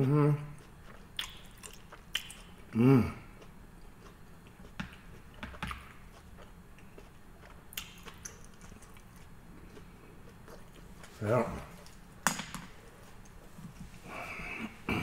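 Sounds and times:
man chewing: 0:00.0 - 0:15.0.

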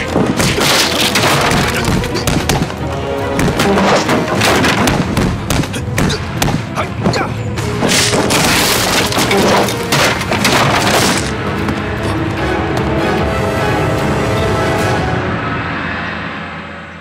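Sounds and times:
wooden crates smashing: 0:00.0 - 0:02.6, 0:07.8 - 0:11.4
fight hits and thuds: 0:00.0 - 0:06.6
action music: 0:00.0 - 0:16.2.

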